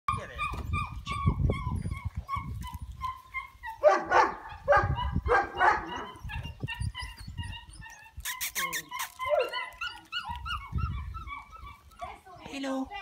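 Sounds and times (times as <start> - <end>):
puppy whimpering yips: 0.1 - 3.8, 4.5 - 12.2
puppy barking: 3.1 - 7.2, 8.6 - 12.2.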